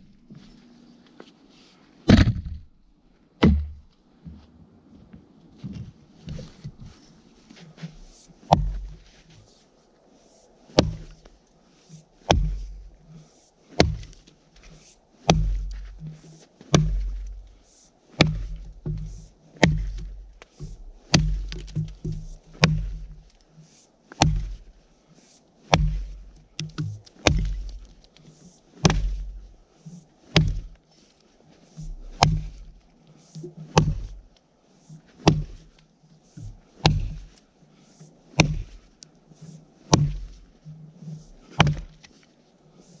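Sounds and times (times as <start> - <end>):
axe chopping log: 2.1 - 2.6, 3.4 - 3.9, 7.8 - 9.1, 10.8 - 11.2, 12.3 - 12.9, 13.7 - 14.3, 15.2 - 17.6, 18.2 - 23.4, 24.1 - 24.7, 25.7 - 27.9, 28.8 - 29.5, 30.3 - 30.8, 31.8 - 32.8, 33.4 - 34.2, 35.2 - 35.7, 36.4 - 37.4, 38.3 - 38.9, 39.9 - 40.4, 41.0 - 42.0.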